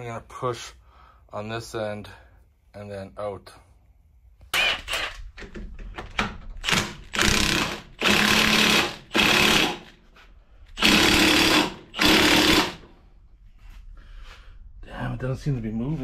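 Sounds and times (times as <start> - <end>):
impact wrench hammering: 6.6 - 9.9, 10.8 - 12.9.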